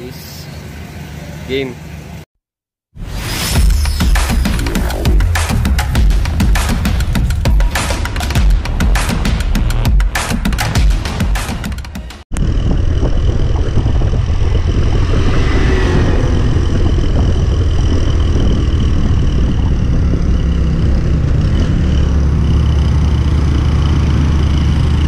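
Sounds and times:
wind rushing over microphone: 0:12.3 - 0:22.6
motorcycle engine running: 0:12.3 - 0:25.0.

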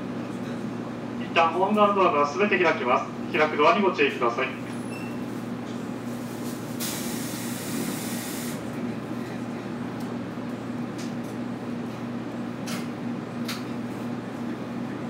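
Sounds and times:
compressed air hissing: 0:06.8 - 0:08.6.

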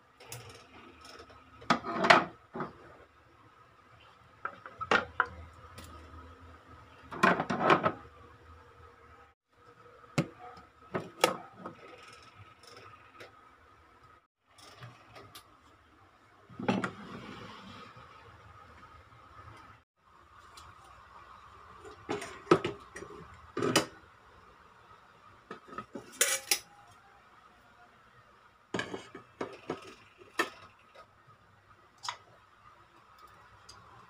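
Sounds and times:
metal pans clattering on wood: 0:28.8 - 0:30.6.

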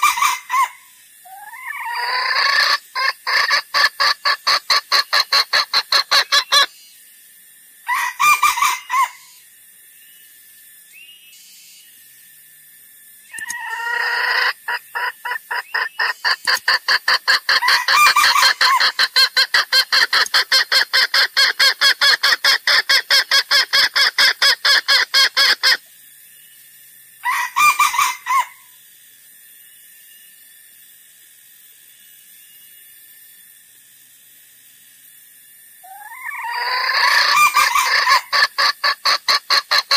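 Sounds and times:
junglefowl clucking: 0:00.0 - 0:06.7, 0:07.9 - 0:09.2, 0:13.3 - 0:25.8, 0:27.2 - 0:28.6, 0:35.9 - 0:39.9.

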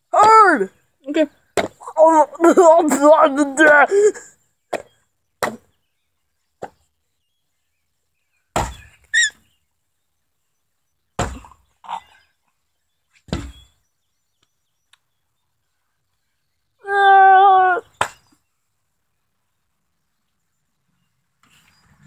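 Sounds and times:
wooden stick thudding: 0:01.6 - 0:01.8, 0:04.7 - 0:05.7, 0:08.5 - 0:08.9, 0:11.2 - 0:11.6, 0:13.3 - 0:13.7.

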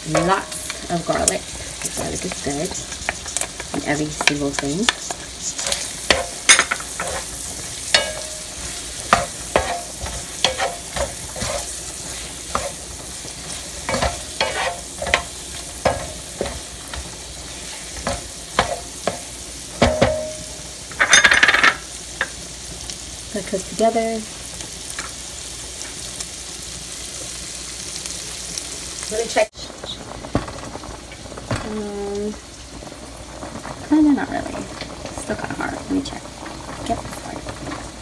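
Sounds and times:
wooden spoon scraping a pan: 0:00.0 - 0:19.3
shrimp sizzling in a frying pan: 0:00.0 - 0:38.0.

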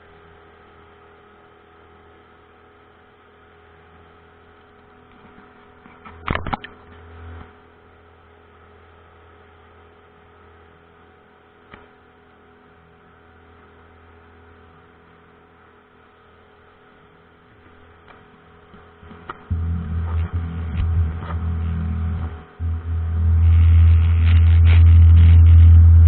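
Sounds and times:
outboard motor humming: 0:18.6 - 0:26.0.

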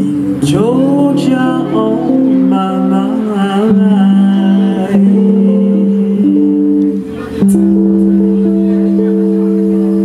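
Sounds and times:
woman singing with vibrato: 0:00.0 - 0:06.6
electric guitar chords: 0:00.0 - 0:10.0.

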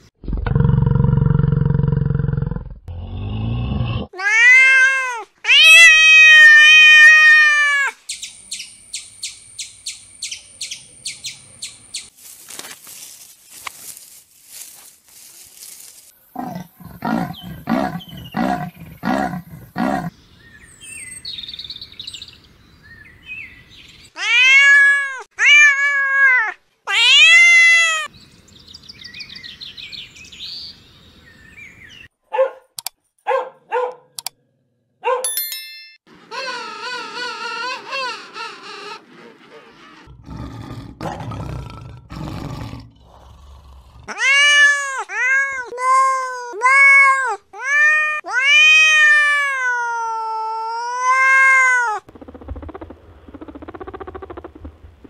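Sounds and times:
cat meowing: 0:04.2 - 0:07.9, 0:24.2 - 0:28.1, 0:44.1 - 0:52.1
pulsed animal calls: 0:16.4 - 0:20.1, 0:52.1 - 0:55.0
puppy yipping: 0:33.3 - 0:34.0, 0:35.0 - 0:35.3.

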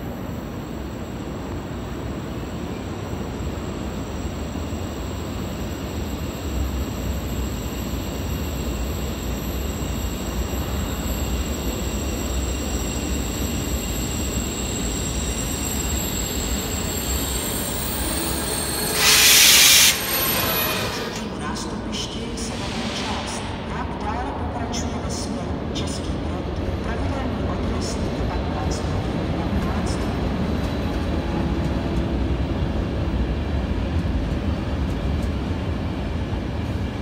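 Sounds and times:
train rumbling: 0:00.0 - 0:37.0
wheels squealing on rails: 0:00.6 - 0:23.5
loud burst of hissing: 0:18.1 - 0:21.3.

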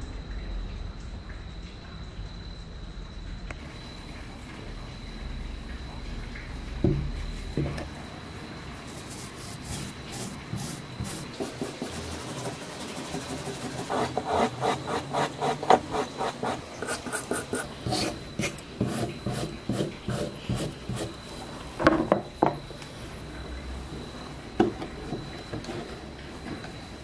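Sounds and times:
wire brush scrubbing metal: 0:08.9 - 0:21.2.

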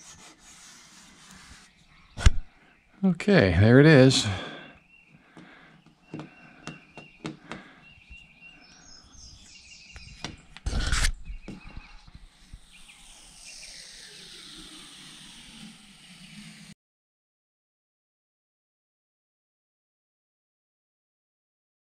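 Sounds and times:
tape peeling hiss: 0:00.0 - 0:01.8, 0:12.0 - 0:16.8.

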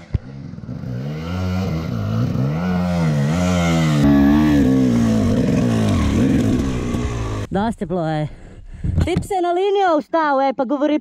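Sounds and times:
dirt bike engine revving: 0:00.3 - 0:07.5.

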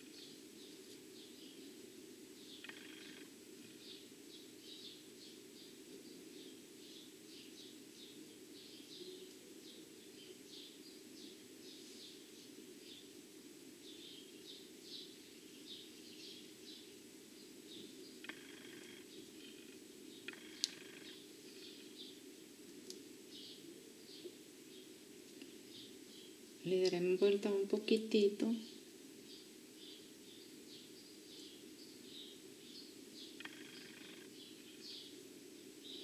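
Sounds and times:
faint bird chirping: 0:00.0 - 0:36.0.

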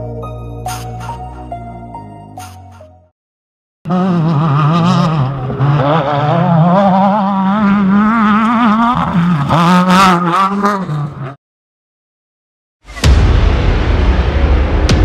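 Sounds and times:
race car engine revving: 0:03.9 - 0:11.4.

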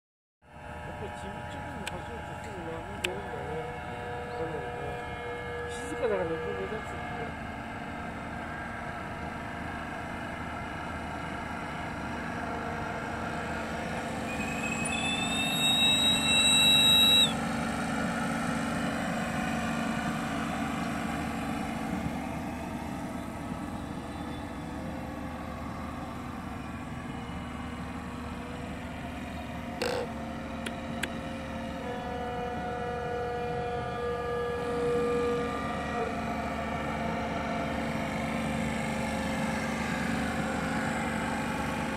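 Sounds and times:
steam whistle: 0:14.2 - 0:17.6, 0:31.8 - 0:36.4.

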